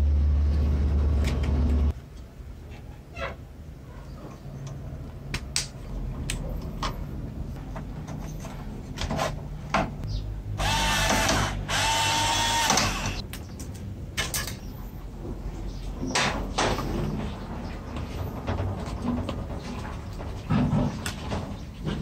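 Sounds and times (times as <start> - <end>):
electric screwdriver whining: 10.6 - 13.2.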